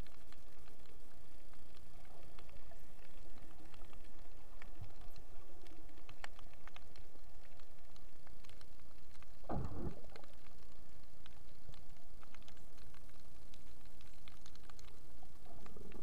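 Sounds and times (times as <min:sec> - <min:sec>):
sharp clicks and crackles: 0:00.0 - 0:16.0
underwater rumble: 0:00.0 - 0:16.0.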